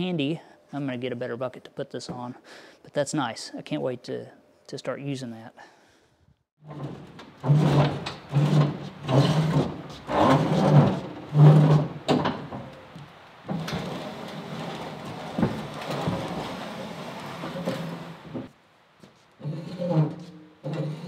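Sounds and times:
table scraping down wooden ramps: 6.6 - 12.8, 13.5 - 18.6, 19.4 - 21.0.

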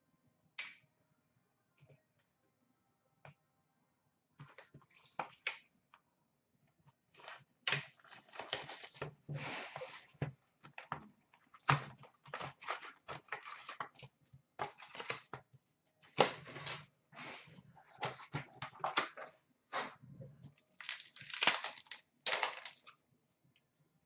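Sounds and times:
cardboard and foil packs rustling: 8.0 - 10.1, 20.7 - 22.9.

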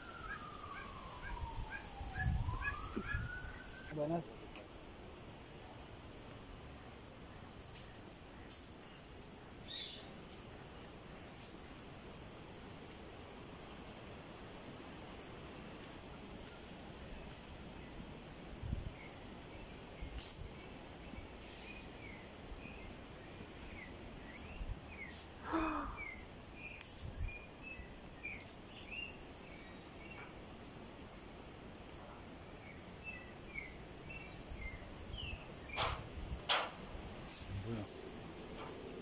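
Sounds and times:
birds chirping: 0.0 - 4.3
faint outdoor hiss: 0.0 - 39.0.

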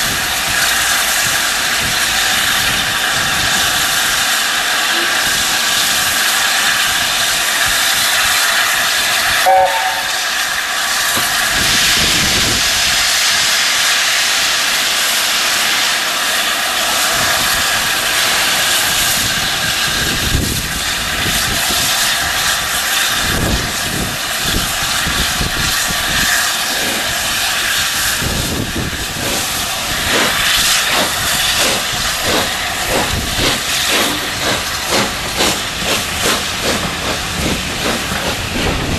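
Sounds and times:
steam hissing: 0.0 - 38.9
steam whistle note: 9.4 - 10.3
locomotive exhaust chuffs: 17.2 - 38.9.

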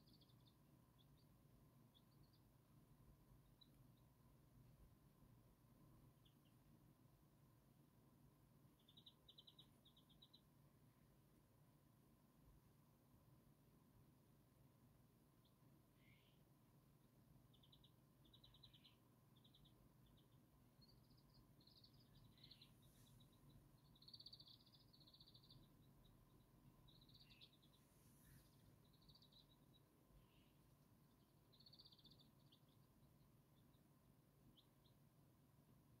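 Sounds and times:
chicks peeping: 0.0 - 1.3, 1.9 - 2.5, 8.8 - 10.4, 17.5 - 33.9
single chick chirps: 17.5 - 26.1, 26.9 - 30.6, 31.5 - 32.9.

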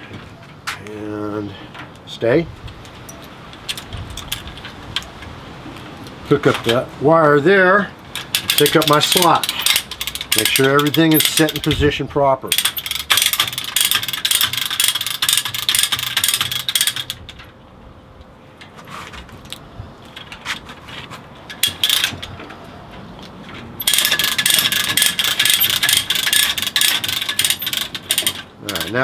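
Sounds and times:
metallic clicks: 8.1 - 11.9, 12.5 - 17.6, 21.4 - 29.0
ratchet cable puller clicking: 8.1 - 11.9, 12.5 - 17.5, 21.5 - 22.5, 23.8 - 29.0.

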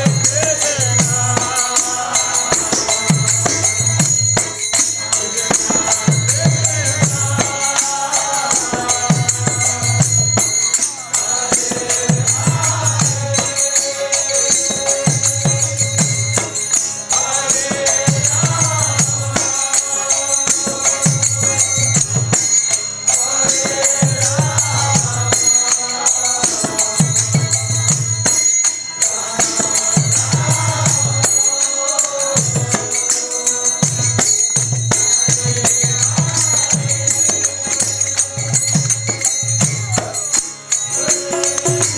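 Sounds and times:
hand cymbals jingling: 0.0 - 41.9
voices chanting: 0.0 - 41.9.

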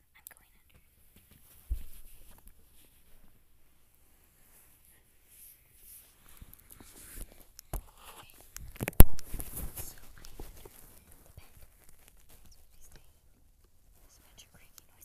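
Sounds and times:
phone rustling against bedding: 1.2 - 3.4, 4.1 - 13.1.

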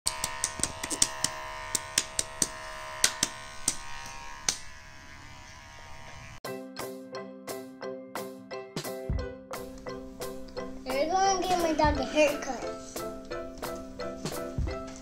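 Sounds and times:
hair clippers buzzing: 0.1 - 6.4.

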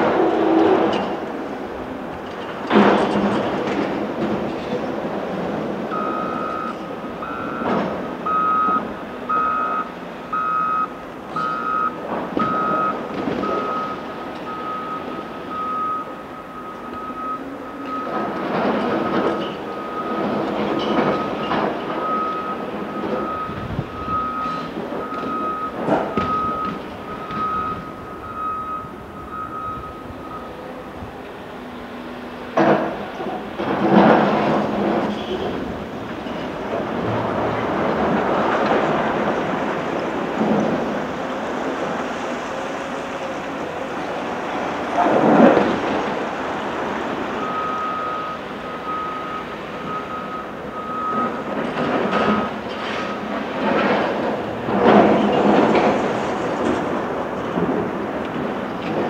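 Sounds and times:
diesel engine running: 0.0 - 59.0
reversing alarm beeps: 5.9 - 30.7, 47.4 - 53.3.

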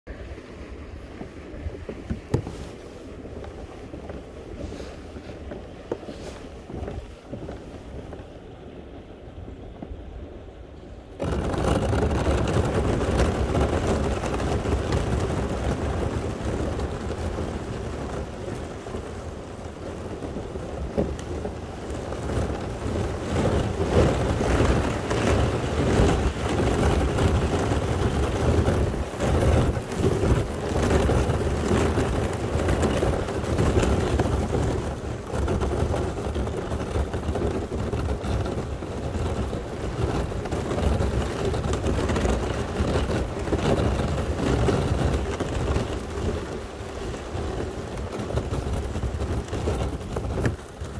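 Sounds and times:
kayak hull breaking through ice: 11.2 - 50.9.

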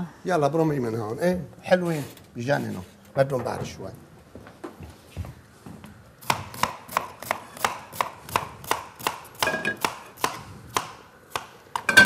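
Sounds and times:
knife chopping onion on board: 6.2 - 11.9.

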